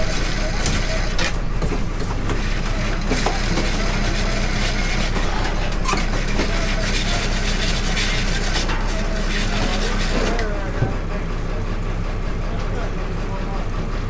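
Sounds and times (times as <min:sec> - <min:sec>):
wire crab pots clanking: 0:00.0 - 0:10.5
boat engine running: 0:00.0 - 0:14.0.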